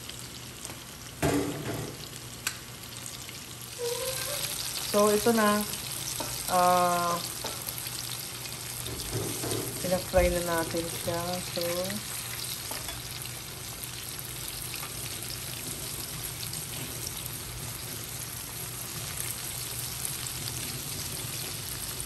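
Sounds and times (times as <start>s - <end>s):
chicken deep-frying in oil: 0.0s - 22.0s.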